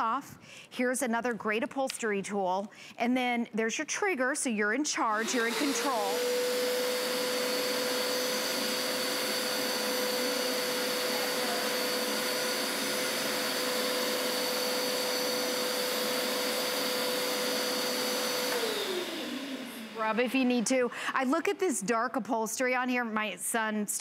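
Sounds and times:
carpet cleaner suction motor whining: 0:05.2 - 0:20.6.

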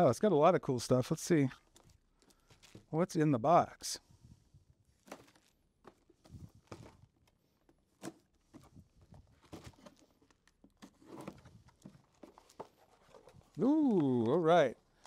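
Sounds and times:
cardboard being handled: 0:01.6 - 0:03.0, 0:04.8 - 0:15.0.

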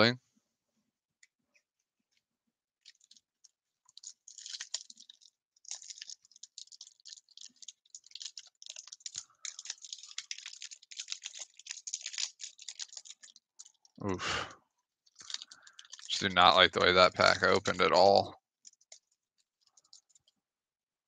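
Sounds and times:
foil pack crinkling and tearing: 0:02.9 - 0:03.2, 0:03.9 - 0:14.0, 0:15.1 - 0:19.0.

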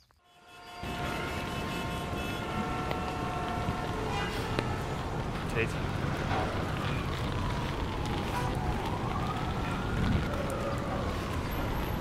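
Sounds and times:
street noise rumble: 0:00.1 - 0:12.0
siren wailing: 0:06.1 - 0:12.0.

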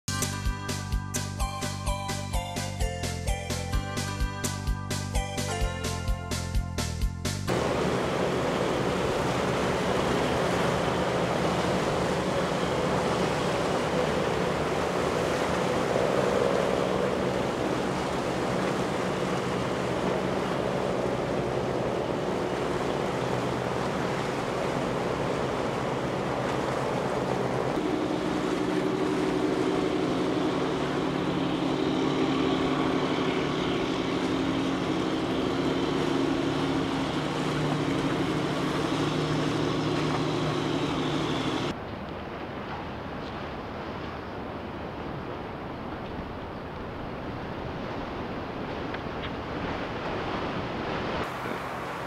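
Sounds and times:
small boat engines droning: 0:00.1 - 0:06.6, 0:07.5 - 0:52.0
waves washing: 0:07.5 - 0:52.0.

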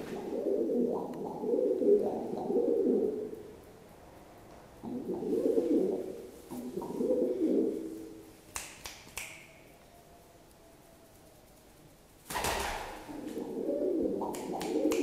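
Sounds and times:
pigeon cooing: 0:00.0 - 0:03.4, 0:04.8 - 0:08.1, 0:12.6 - 0:15.0.

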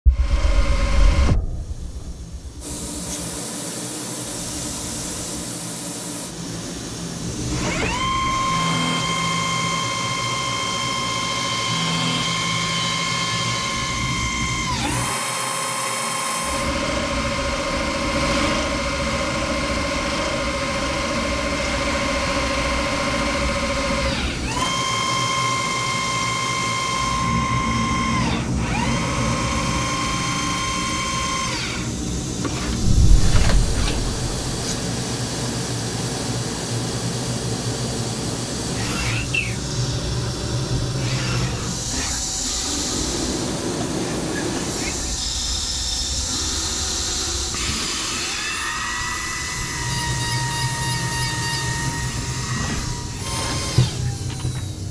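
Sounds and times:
loud low rush: 0:00.1 - 0:03.0, 0:32.7 - 0:35.2
lathe spindle whine with cutting: 0:05.4 - 0:35.0.

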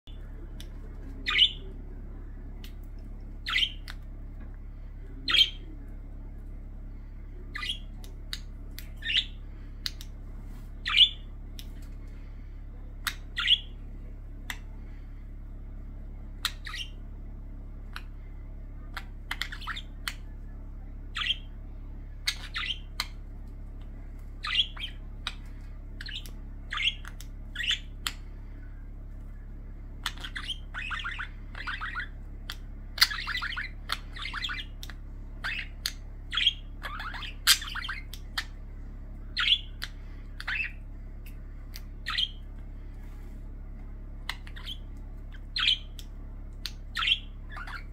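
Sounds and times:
budgerigars chirping squawks: 0:01.2 - 0:01.8, 0:03.4 - 0:04.0, 0:07.5 - 0:07.9, 0:08.8 - 0:10.0, 0:10.8 - 0:11.3, 0:13.1 - 0:13.8, 0:16.5 - 0:17.0, 0:18.9 - 0:20.2, 0:21.2 - 0:21.6, 0:22.2 - 0:23.2, 0:24.4 - 0:28.2, 0:30.0 - 0:38.6, 0:39.3 - 0:41.4, 0:42.0 - 0:42.5, 0:44.2 - 0:47.9.

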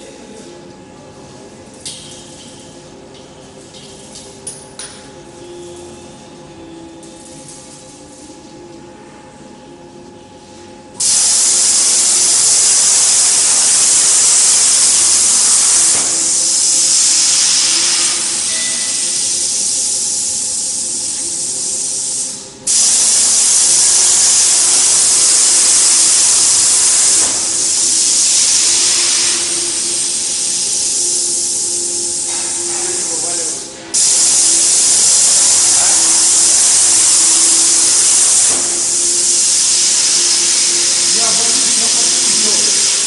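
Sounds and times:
gas hissing through plasma torch: 0:11.0 - 0:43.0.

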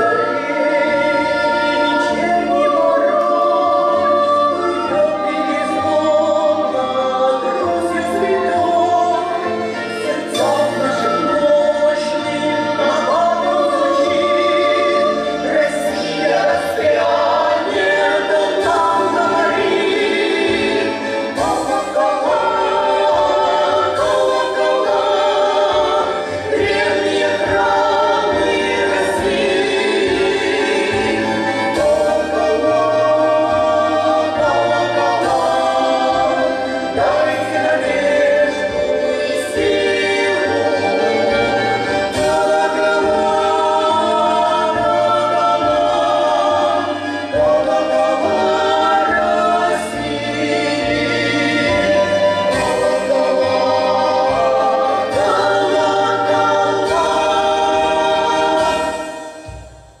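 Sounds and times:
female vocal trio singing in harmony: 0:00.0 - 0:59.6.

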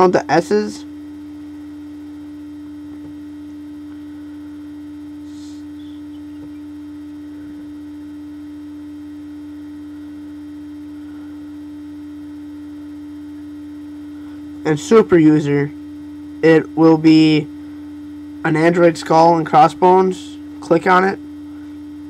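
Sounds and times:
electrical hum: 0:00.0 - 0:22.0
low drone: 0:03.8 - 0:07.9.

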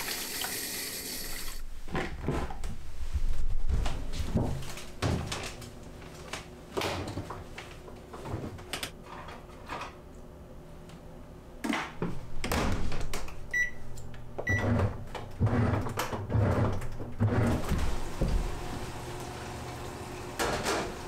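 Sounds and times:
washing machine low pulses: 0:14.4 - 0:21.0.

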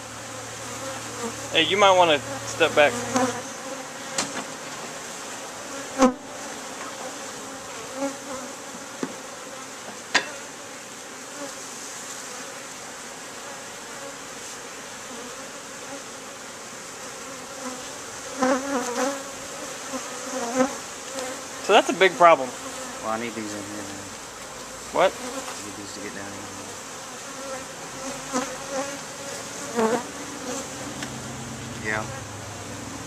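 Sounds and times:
bees buzzing: 0:00.0 - 0:33.0.

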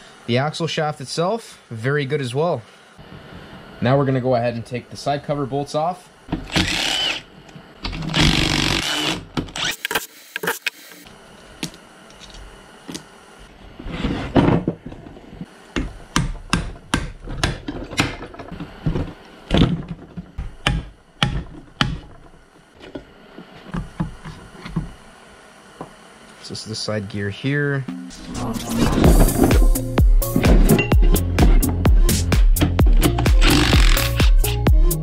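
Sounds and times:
metal parts and tools clanking: 0:30.3 - 0:31.2
impact gun running: 0:32.8 - 0:34.4.

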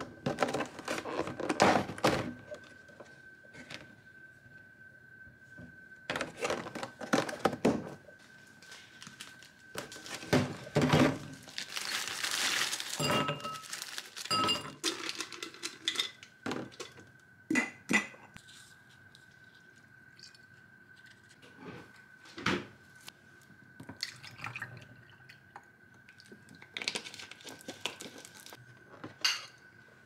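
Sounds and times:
dishes and pots clinking: 0:12.9 - 0:18.4, 0:29.0 - 0:29.7.

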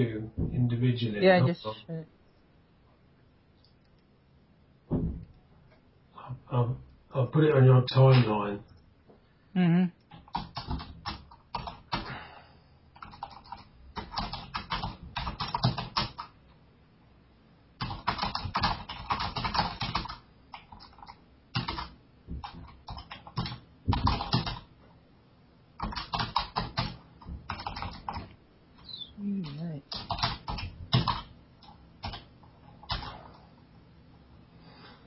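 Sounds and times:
typing on keyboard: 0:10.1 - 0:12.1, 0:13.0 - 0:16.4, 0:17.8 - 0:24.7, 0:25.8 - 0:28.3, 0:29.4 - 0:33.2.

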